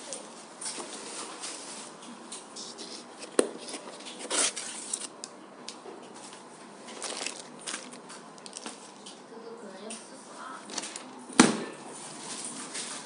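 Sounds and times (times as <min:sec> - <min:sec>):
light scratching and handling: 0:00.7 - 0:05.2.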